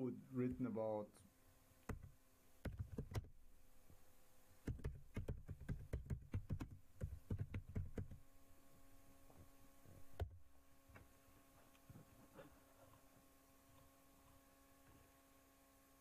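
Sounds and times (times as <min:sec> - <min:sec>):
faint electrical hum: 0:00.0 - 0:16.0
keyboard typing: 0:01.8 - 0:03.4, 0:04.6 - 0:08.2.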